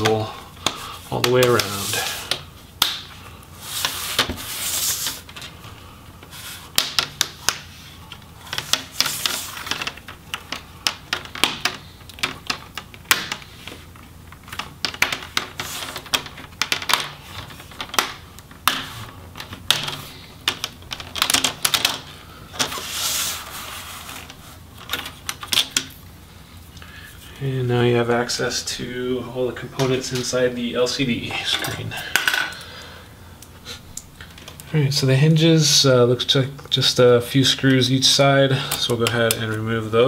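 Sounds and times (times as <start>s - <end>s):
plastic rubbing: 0.0s - 26.0s.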